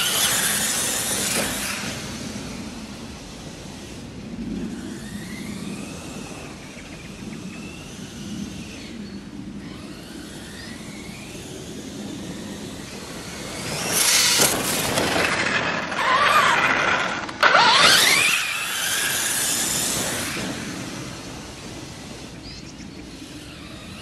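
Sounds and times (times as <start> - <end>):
electric motor whining: 0.0 - 24.0
tyres scrabbling over gravel: 13.5 - 20.7.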